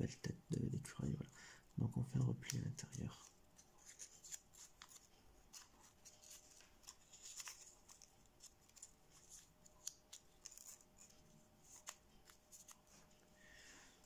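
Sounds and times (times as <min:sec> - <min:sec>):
thin paper crinkling: 0:02.2 - 0:13.1.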